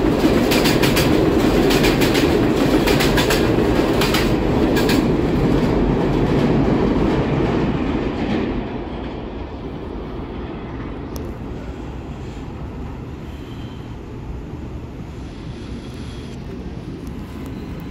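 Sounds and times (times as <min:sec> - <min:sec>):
wheels clacking over rail joints: 0:00.0 - 0:08.7
subway train rumbling: 0:00.0 - 0:17.9.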